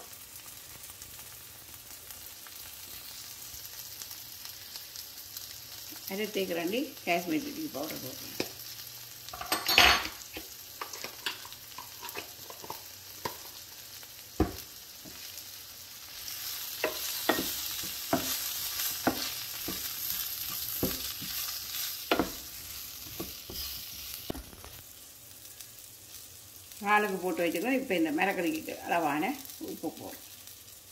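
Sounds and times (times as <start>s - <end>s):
vegetables sizzling: 0.0s - 30.9s
wood knocking against pan: 14.4s - 15.2s, 16.8s - 18.4s
wooden spatula scraping a pan: 16.7s - 24.0s.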